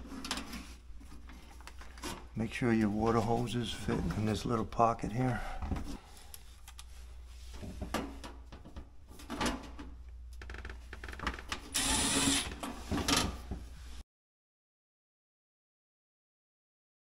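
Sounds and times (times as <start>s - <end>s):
screws and bit clicking: 11.7s - 12.6s
cordless driver running: 11.8s - 12.5s.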